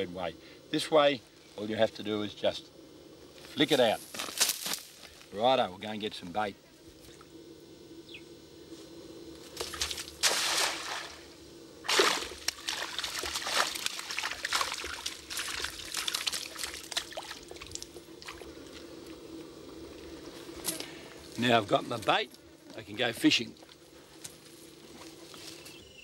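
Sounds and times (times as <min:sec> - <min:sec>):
net splashing into water: 0:09.6 - 0:18.4
water sloshing and dripping: 0:09.6 - 0:19.2.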